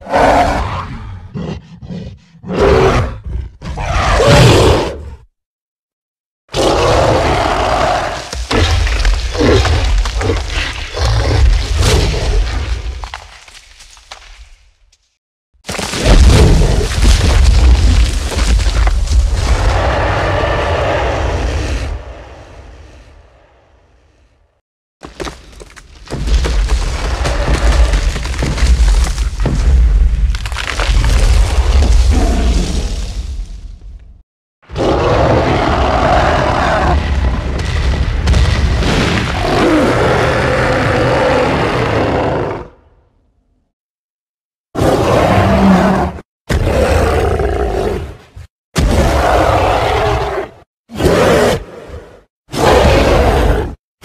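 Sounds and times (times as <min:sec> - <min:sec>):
giant monster roar: 0:00.0 - 0:05.2, 0:06.5 - 0:12.6, 0:16.0 - 0:23.6, 0:30.5 - 0:33.0, 0:34.7 - 0:37.6, 0:38.8 - 0:42.9, 0:44.8 - 0:48.2, 0:48.8 - 0:53.8.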